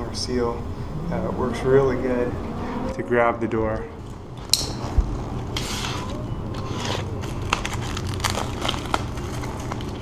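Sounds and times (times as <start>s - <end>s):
plastic packaging rustling: 6.0s - 10.0s.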